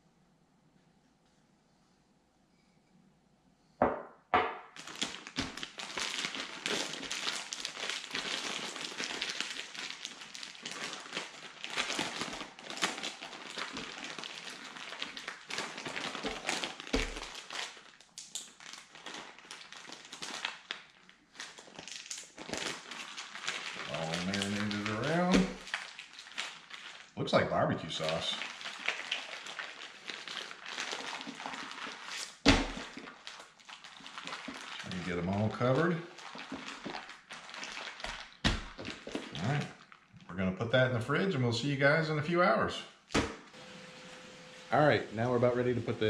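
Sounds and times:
sharp knocks: 3.8s - 4.7s
plastic bag crinkling: 4.8s - 27.2s, 27.8s - 40.3s.

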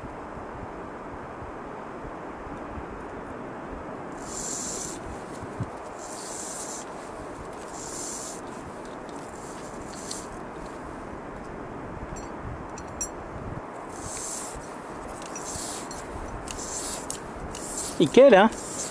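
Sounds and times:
wind on microphone: 3.9s - 18.9s
short bursts of high hiss: 4.2s - 10.8s, 13.8s - 18.9s.

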